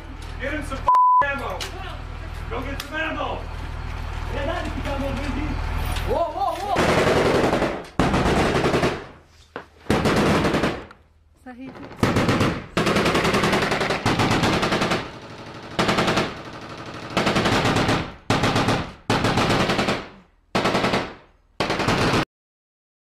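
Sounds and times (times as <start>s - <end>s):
automatic gunfire bursts: 6.8s - 9.1s, 9.9s - 10.9s, 11.9s - 22.2s.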